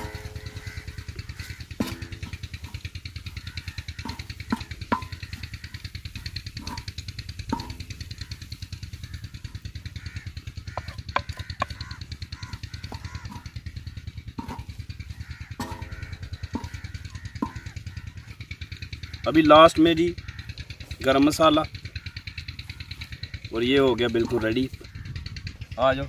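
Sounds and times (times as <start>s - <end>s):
spatula knocking on metal: 0.0s - 8.4s, 10.7s - 18.2s
crow cawing: 0.0s - 26.0s
fast pulsing throb: 0.0s - 26.0s
spatula scraping a griddle: 1.4s - 2.9s.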